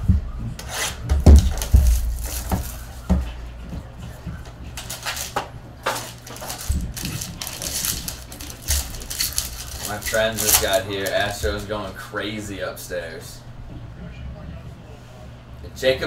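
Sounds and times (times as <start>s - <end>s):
foil wrapper crinkling and tearing: 1.2s - 3.1s, 4.7s - 11.7s.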